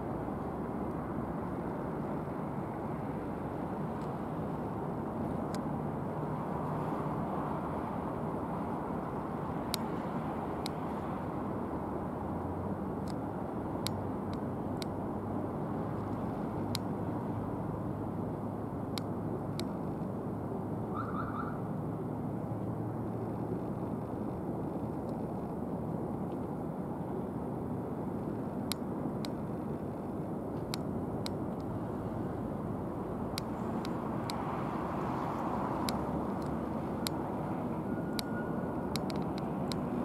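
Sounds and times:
sharp clicks: 0:35.8 - 0:37.3, 0:38.1 - 0:40.0.

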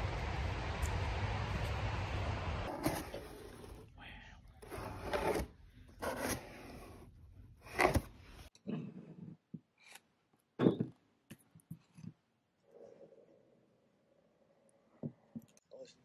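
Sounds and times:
cardboard box scraping and rustling: 0:04.6 - 0:08.2.

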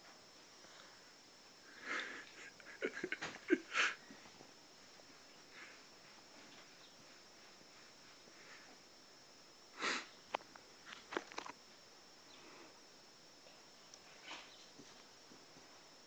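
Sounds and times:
child breathing and sniffing: 0:09.7 - 0:10.2.

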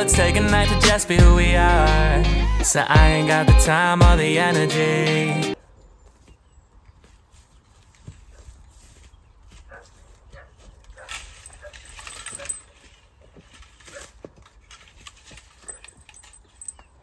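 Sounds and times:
rustling noise: 0:06.0 - 0:16.9.

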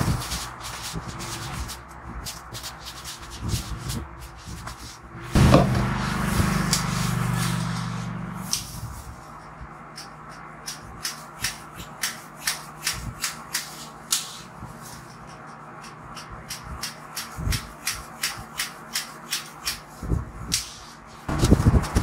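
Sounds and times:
dull thuds: 0:05.2 - 0:06.0
scissors snipping hair: 0:09.9 - 0:19.9.

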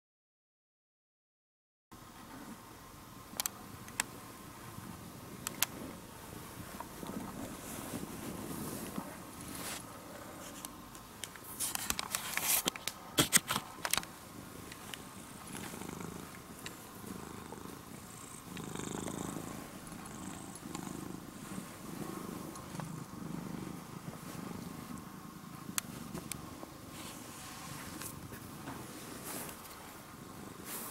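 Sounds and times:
cat purring: 0:04.6 - 0:10.6, 0:14.4 - 0:30.9.

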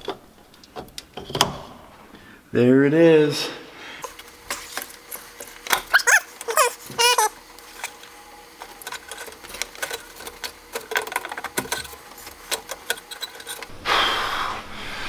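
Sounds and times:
plastic parts clicking and rattling: 0:04.0 - 0:13.7
plastic squeaks: 0:05.7 - 0:08.0.

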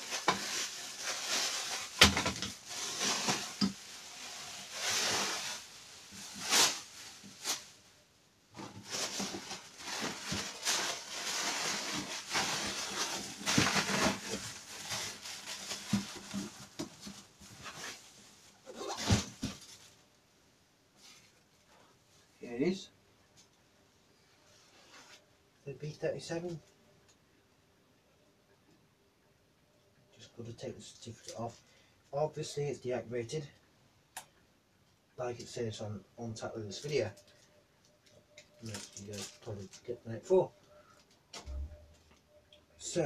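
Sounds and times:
plastic wrapping crinkling: 0:00.0 - 0:07.8, 0:08.6 - 0:20.0, 0:36.8 - 0:39.9.

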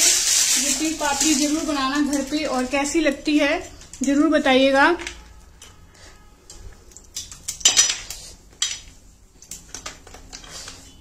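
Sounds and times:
brittle clattering on metal tray: 0:00.0 - 0:04.2, 0:07.1 - 0:08.9
brittle cracking: 0:00.0 - 0:04.2.

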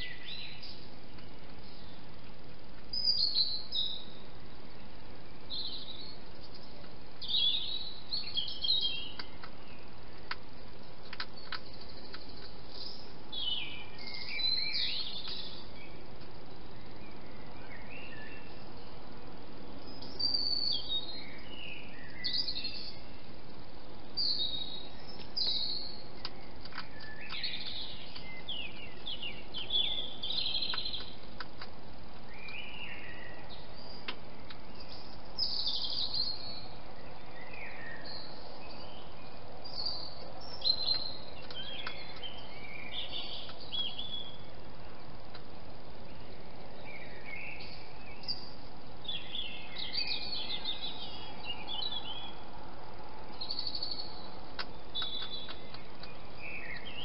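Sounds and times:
songbirds chirping: 0:00.0 - 0:57.0
steady background hiss: 0:00.0 - 0:57.0
faint clicks: 0:11.0 - 0:12.9, 0:26.2 - 0:31.8, 0:54.5 - 0:56.9.

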